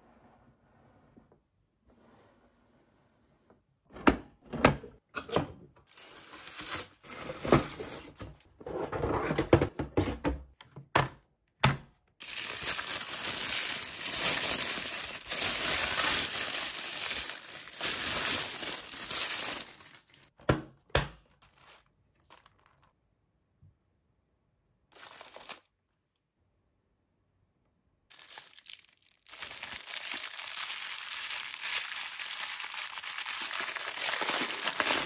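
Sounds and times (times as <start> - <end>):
plastic bag crinkling: 12.2 - 20.3, 21.4 - 22.9, 24.9 - 25.7, 28.1 - 35.0.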